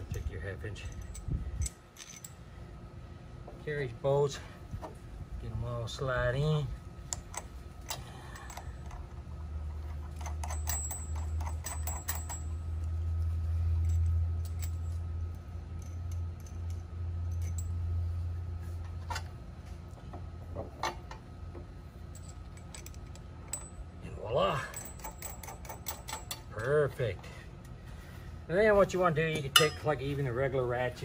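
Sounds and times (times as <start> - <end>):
bolts and washers clinking: 0.0 - 2.4, 7.0 - 13.0, 13.7 - 17.9, 18.8 - 23.9, 24.5 - 27.2, 29.1 - 30.2
low steady rumble: 0.0 - 31.0.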